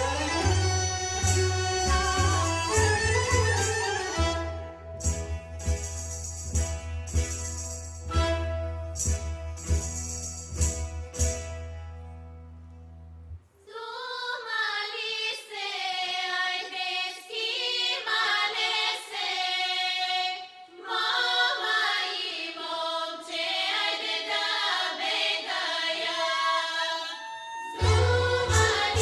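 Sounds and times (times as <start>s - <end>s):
women's folk choir singing: 13.6s - 29.0s.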